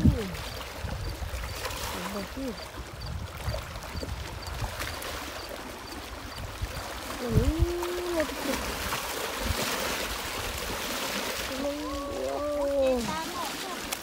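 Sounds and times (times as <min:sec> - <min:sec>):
wind buffeting microphone: 0:00.0 - 0:11.0
waves lapping against rocks: 0:00.0 - 0:14.0.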